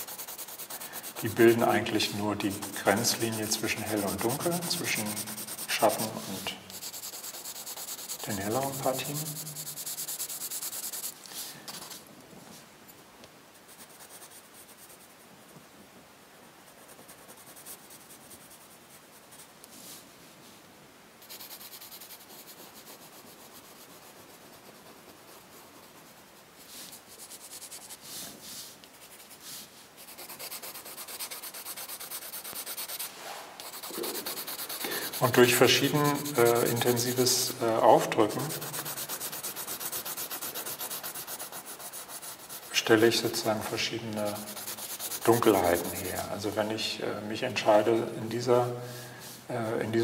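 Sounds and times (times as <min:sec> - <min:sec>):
pencil scratching on paper: 0:00.0 - 0:12.0, 0:13.7 - 0:15.2, 0:16.7 - 0:19.5, 0:21.2 - 0:28.3, 0:28.9 - 0:46.7.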